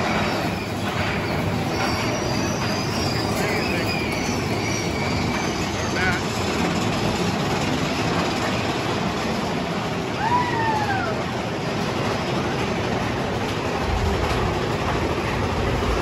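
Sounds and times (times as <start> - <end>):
roller coaster wheels rattling: 0.0 - 16.0
high squeal falling in pitch: 0.4 - 6.2
deep rumble: 13.2 - 16.0.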